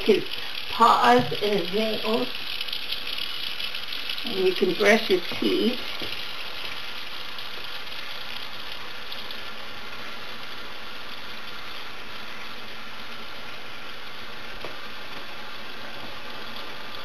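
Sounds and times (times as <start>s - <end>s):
faucet running into sink: 0.0s - 9.4s.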